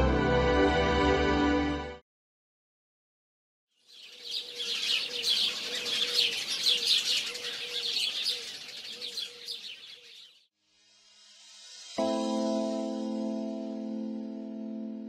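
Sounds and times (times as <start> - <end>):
small birds chirping: 3.7 - 10.5.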